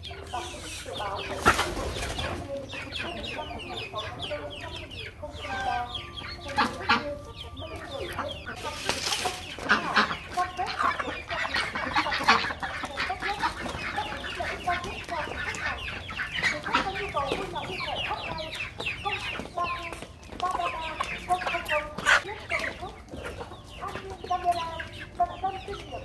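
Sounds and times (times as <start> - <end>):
chickens clucking: 0.0 - 26.0.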